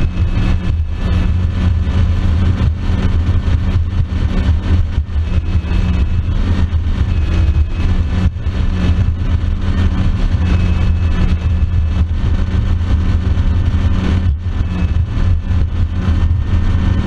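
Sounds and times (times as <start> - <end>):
outboard motor running: 0.0 - 17.0
wind: 0.0 - 17.0.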